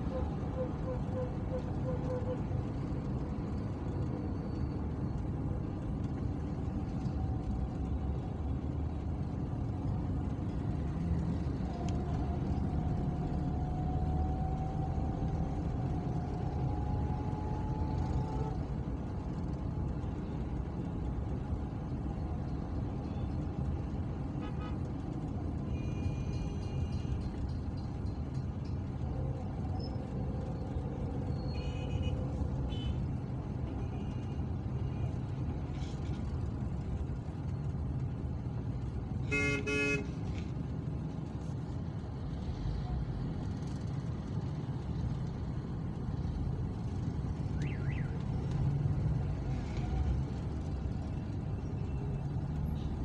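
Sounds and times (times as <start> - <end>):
car engine and road rumble: 0.0 - 53.0.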